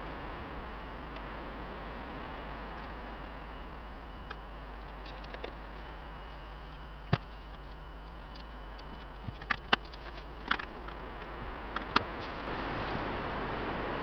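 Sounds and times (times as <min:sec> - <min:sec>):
sharp clicks and pops: 0:07.1 - 0:12.1.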